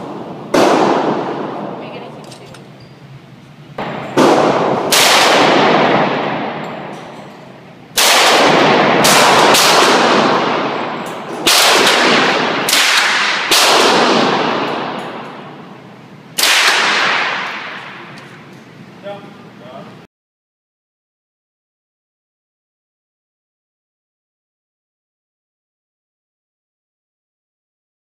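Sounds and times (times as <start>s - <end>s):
echoing gunshots: 0.0s - 2.2s, 3.8s - 18.4s.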